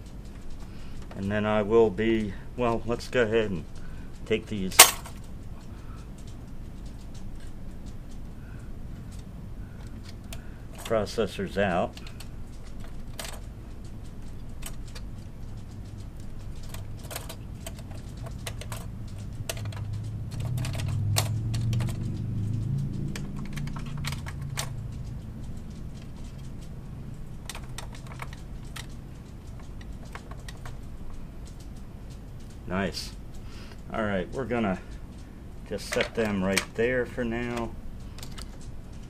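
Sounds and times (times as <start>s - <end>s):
air conditioner hum: 0.0s - 39.0s
metal and plastic clicks: 3.7s - 5.4s, 9.1s - 32.6s, 35.1s - 39.0s
low rumble: 18.8s - 27.2s.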